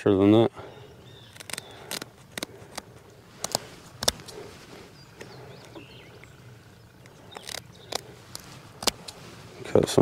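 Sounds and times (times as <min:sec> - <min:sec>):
faint bird chirps: 0:00.4 - 0:02.2, 0:03.6 - 0:09.6
shears snipping fins: 0:01.3 - 0:04.5, 0:07.1 - 0:09.3.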